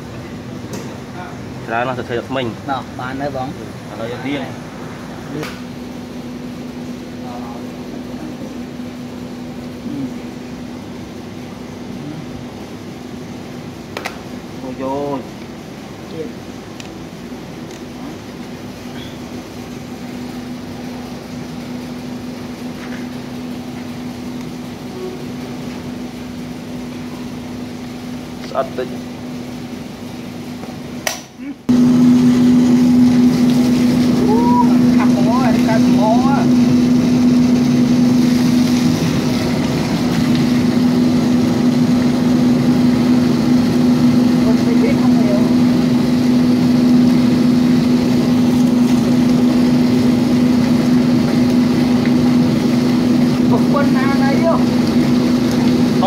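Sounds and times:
drain pump humming: 0.0s - 56.0s
water from hose splashing: 31.7s - 56.0s.

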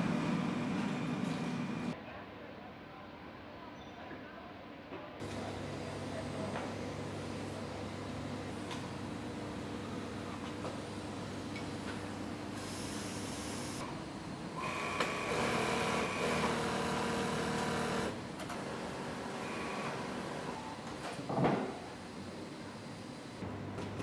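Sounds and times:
sewing machines humming: 0.0s - 2.0s, 5.2s - 21.1s.

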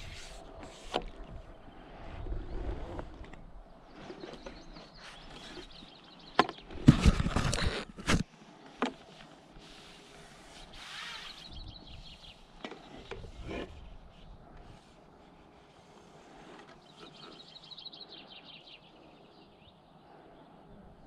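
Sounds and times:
wind rumble: 0.0s - 4.2s.

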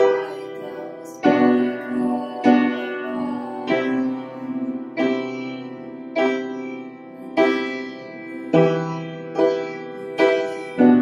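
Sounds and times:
upright piano chords: 0.0s - 11.0s.

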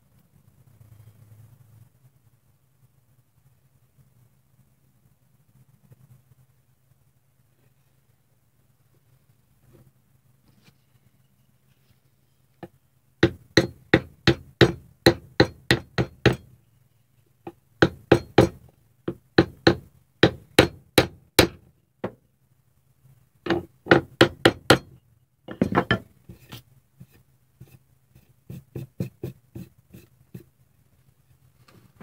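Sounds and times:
hammer knocking on wooden block: 13.2s - 16.5s, 17.8s - 22.2s, 23.5s - 26.1s, 28.5s - 29.7s.

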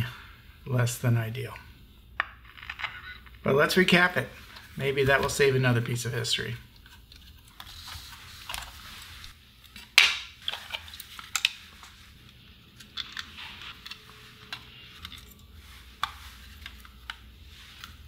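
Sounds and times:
radio being taken apart: 2.3s - 3.4s, 9.6s - 18.0s.

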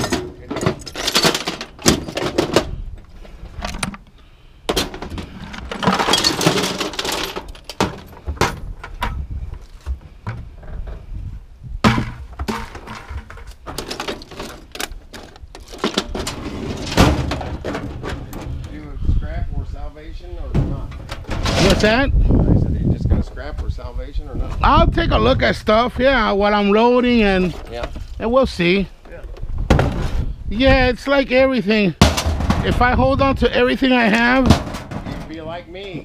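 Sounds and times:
scrap pieces clattering into box: 5.7s - 7.8s
plastic bucket tipped: 11.8s - 14.5s, 32.0s - 32.8s.

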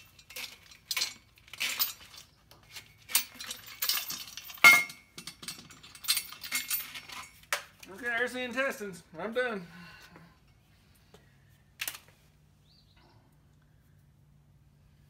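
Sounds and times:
sharp metal clank ringing: 4.6s - 5.1s.

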